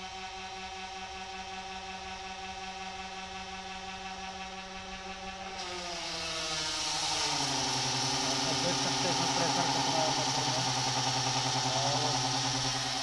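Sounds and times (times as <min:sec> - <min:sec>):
electric pump humming: 0:00.0 - 0:13.0
water jetting hiss: 0:05.9 - 0:12.6.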